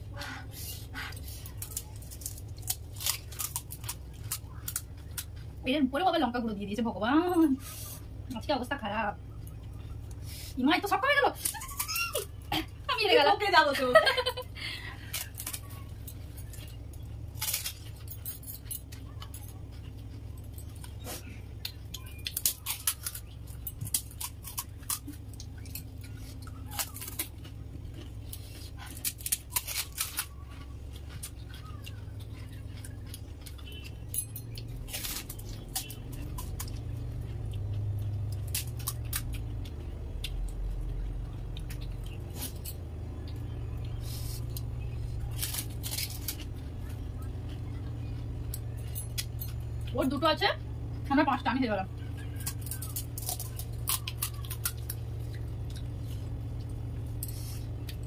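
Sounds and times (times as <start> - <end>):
low steady hum: 0.0 - 58.0
crisp shells cracking and crunching: 1.4 - 5.6, 15.0 - 49.6, 51.9 - 58.0.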